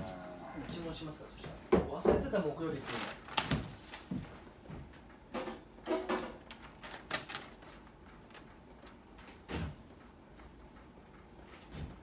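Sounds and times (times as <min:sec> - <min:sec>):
objects knocking on a workbench: 0:01.7 - 0:02.4.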